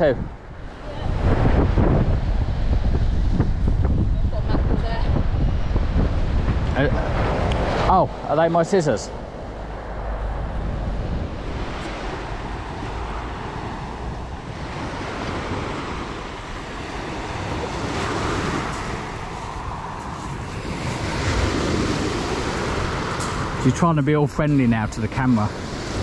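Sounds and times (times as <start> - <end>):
wind rumble on microphone: 0.0 - 26.0
waves breaking on shingle beach: 11.4 - 26.0.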